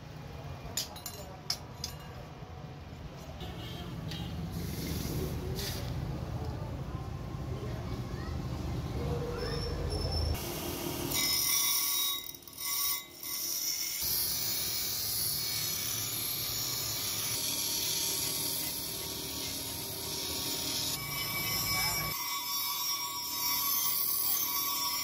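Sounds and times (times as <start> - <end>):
bench grinder grinding blade: 10.4 - 25.0.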